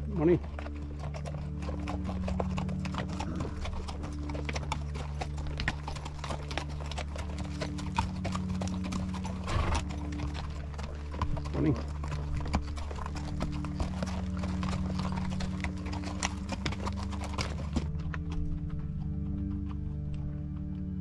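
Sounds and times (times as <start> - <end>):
mule hooves clopping on trail: 0.0 - 21.0.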